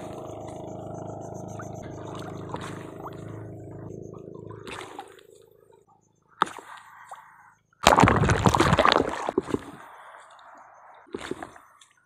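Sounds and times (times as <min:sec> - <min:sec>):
low steady hum: 0:00.0 - 0:06.3
water sloshing and bubbling: 0:00.0 - 0:12.0.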